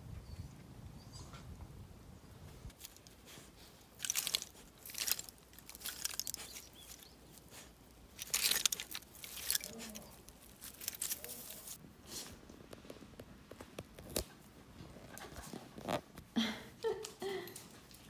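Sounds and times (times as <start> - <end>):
dog rustling soil and leaves: 2.7 - 12.8.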